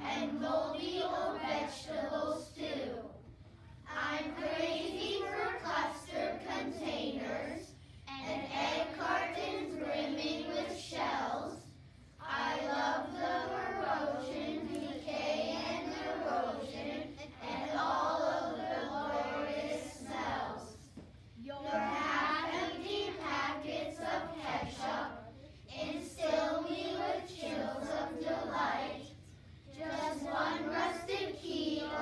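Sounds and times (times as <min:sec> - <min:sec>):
children singing in unison: 0:03.9 - 0:07.6, 0:12.2 - 0:20.7, 0:21.7 - 0:25.1, 0:29.8 - 0:32.0.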